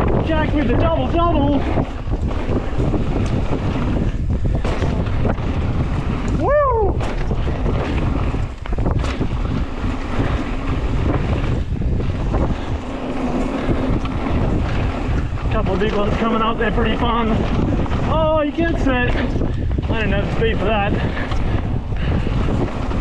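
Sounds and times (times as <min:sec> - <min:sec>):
bike knocking on trail: 0:00.0 - 0:23.0
wind rushing over microphone: 0:00.0 - 0:23.0.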